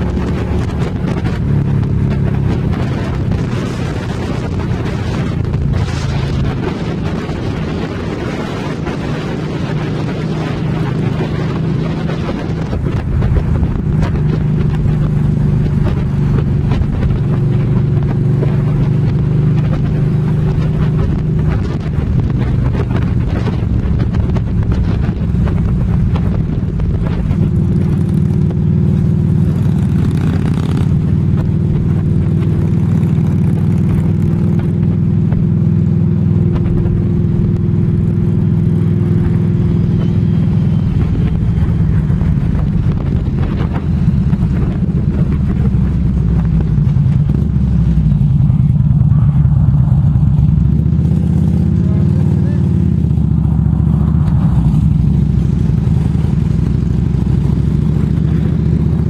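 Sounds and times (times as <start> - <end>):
trike engine running: 0.0 - 59.0
wind on microphone: 0.0 - 59.0.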